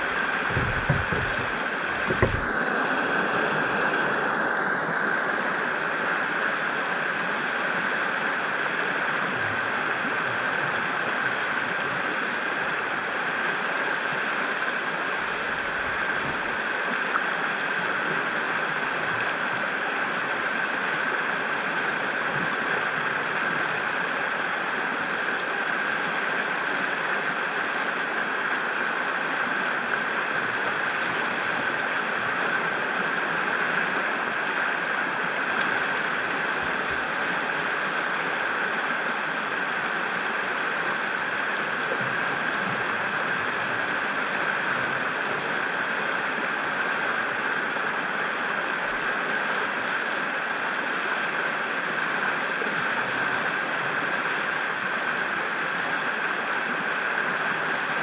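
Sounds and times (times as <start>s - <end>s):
fast-flowing river rushing: 0.0s - 58.0s
low knock: 0.4s - 2.5s.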